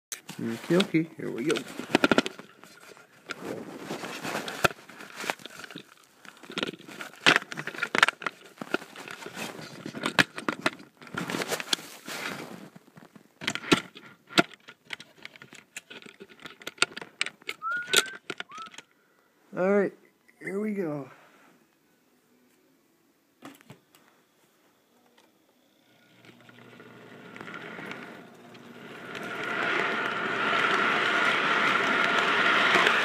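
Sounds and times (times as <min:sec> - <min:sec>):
toy train clicking and rattling: 0:01.4 - 0:03.4, 0:13.4 - 0:18.9, 0:26.2 - 0:33.0.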